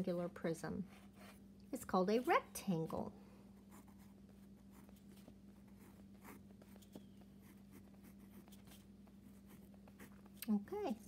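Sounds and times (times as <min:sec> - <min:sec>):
faint steady hum: 0:00.0 - 0:11.0
pen scratching on paper: 0:03.7 - 0:10.3.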